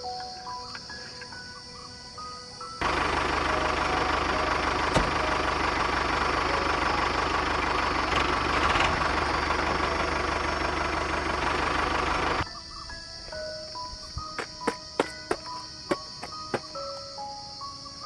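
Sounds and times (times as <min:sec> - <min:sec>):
tractor engine idling: 0:02.8 - 0:12.5.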